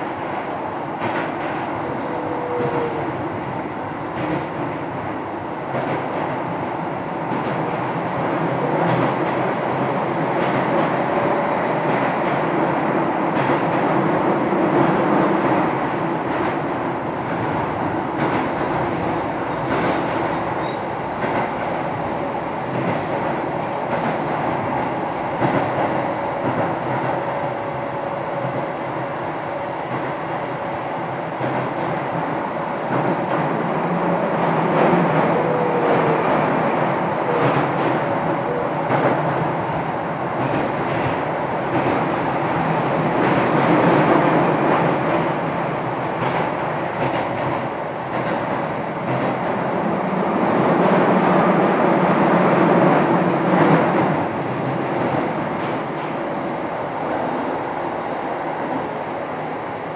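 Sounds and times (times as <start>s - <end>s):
electric train rumbling on rails: 0.0s - 59.9s
clickety-clack of wheels: 1.0s - 1.6s, 4.1s - 4.8s, 5.7s - 6.3s, 7.3s - 11.0s, 18.2s - 21.8s, 22.7s - 24.4s, 25.4s - 27.4s, 29.9s - 30.5s, 31.4s - 33.6s, 37.2s - 42.2s, 46.1s - 49.6s.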